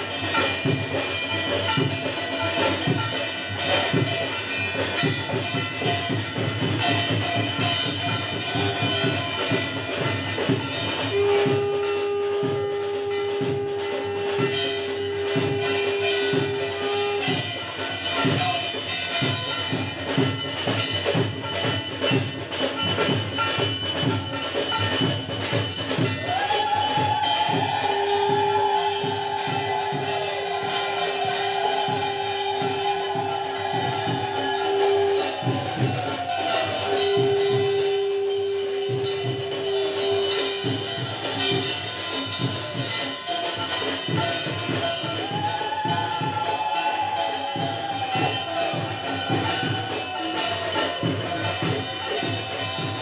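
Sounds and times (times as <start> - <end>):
devotional music with percussion: 0.0 - 53.0
jingling bells: 0.0 - 53.0
long held note: 11.0 - 17.6, 26.7 - 41.7
high wavering tone: 26.7 - 53.0.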